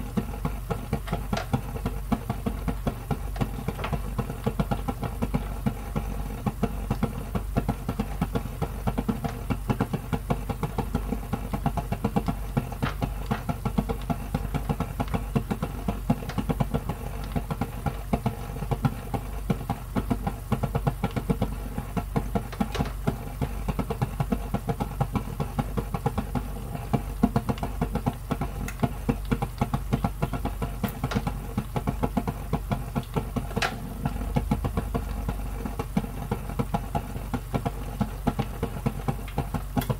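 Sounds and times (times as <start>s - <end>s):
sauce bubbling in a frying pan: 0.0s - 39.9s
steady low hum: 0.0s - 39.9s.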